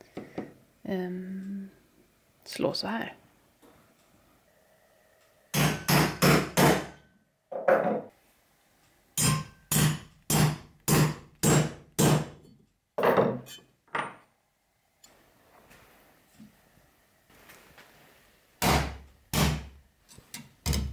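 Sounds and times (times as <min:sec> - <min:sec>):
hammer tapping metal punch: 0:09.2 - 0:12.3, 0:20.3 - 0:20.9.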